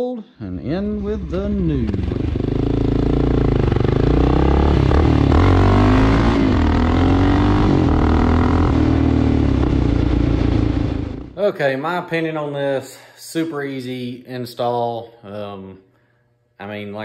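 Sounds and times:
motorcycle engine running: 0.7s - 11.4s.

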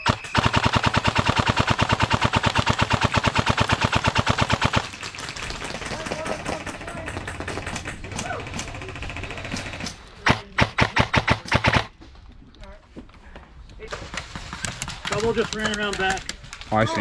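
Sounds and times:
electric rifle full-auto burst: 0.0s - 4.9s, 8.4s - 11.9s
distant rapid shots: 0.0s - 12.0s.

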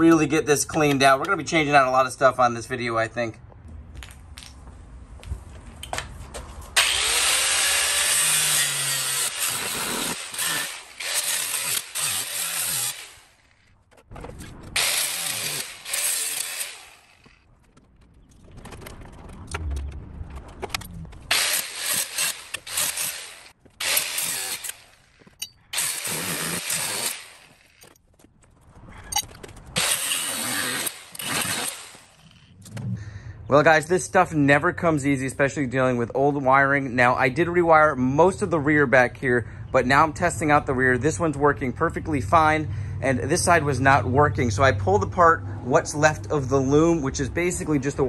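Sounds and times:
handheld power tool running: 6.8s - 13.6s, 14.8s - 17.4s, 21.3s - 28.0s, 29.8s - 32.5s.

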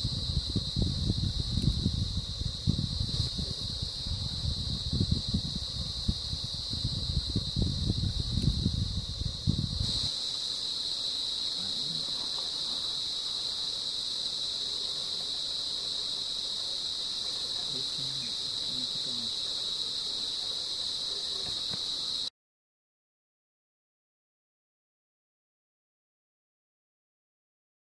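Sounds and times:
insects trilling: 0.0s - 22.3s.

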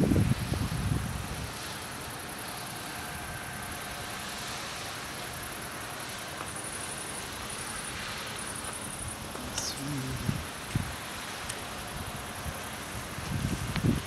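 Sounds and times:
crickets chirring: 0.0s - 14.0s
steady outdoor hiss: 0.0s - 14.0s.

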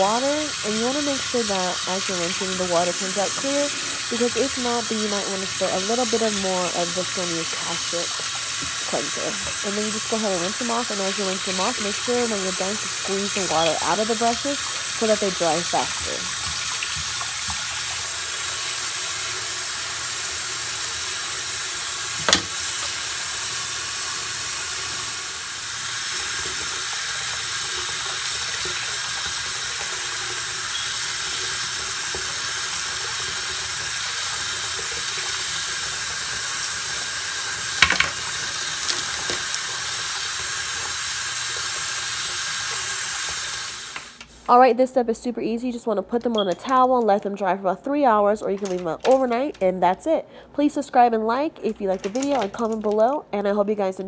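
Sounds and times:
brushes rinsed under water: 0.0s - 25.1s, 25.8s - 43.6s
faucet running into sink: 0.0s - 44.4s.

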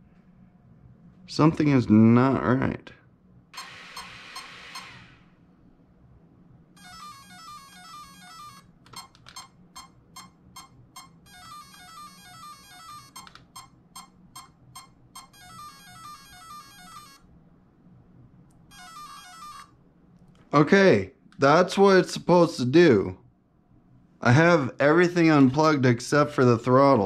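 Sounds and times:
rapid stepped beeps: 6.8s - 17.2s.

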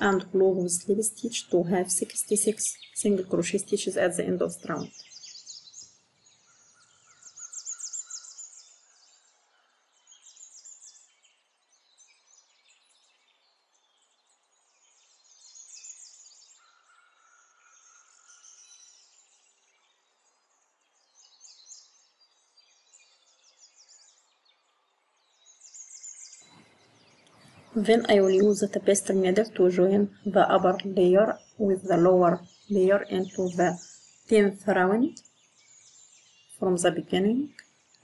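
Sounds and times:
faint birdsong chirps and trills: 0.0s - 38.0s
whistled bird notes: 4.8s - 13.4s.

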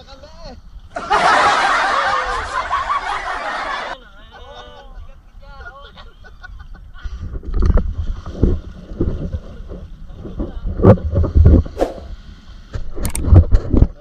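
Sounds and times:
water splashing and sloshing: 7.1s - 14.0s
wind buffeting microphone: 7.2s - 14.0s.

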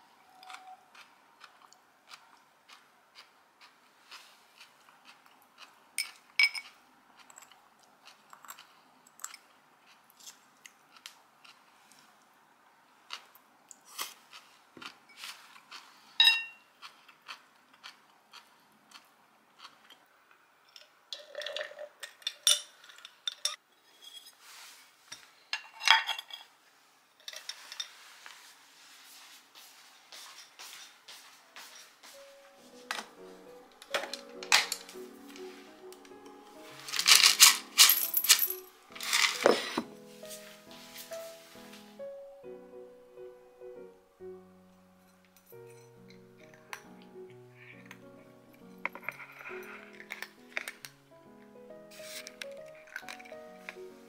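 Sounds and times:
soft chewing and crunching: 0.3s - 20.4s, 52.0s - 54.0s
cutlery clinking on bowls: 6.0s - 7.6s, 16.2s - 16.6s, 20.7s - 23.6s, 33.9s - 35.0s, 36.9s - 39.9s, 48.6s - 51.0s.

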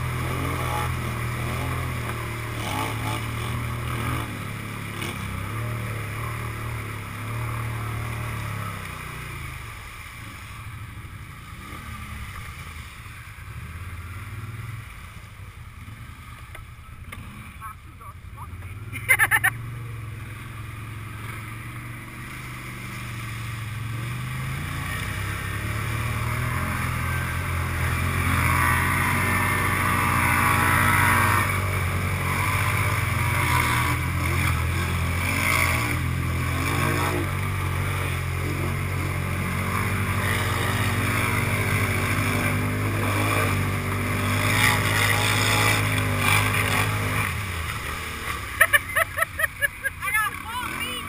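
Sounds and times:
atv engine revving: 0.0s - 51.0s
muddy water splashing: 0.0s - 51.0s.

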